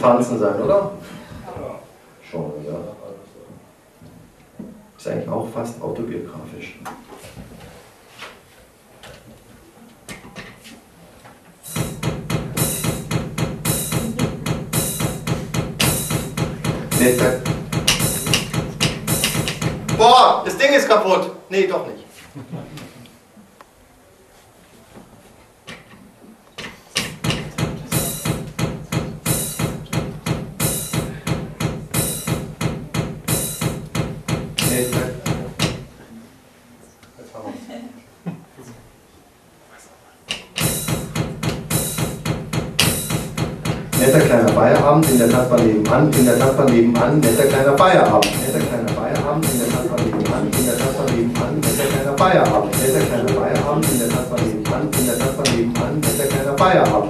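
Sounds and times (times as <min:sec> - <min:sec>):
drum kit dance beat: 0:11.6 - 0:20.2, 0:27.0 - 0:35.9, 0:40.3 - 0:57.0.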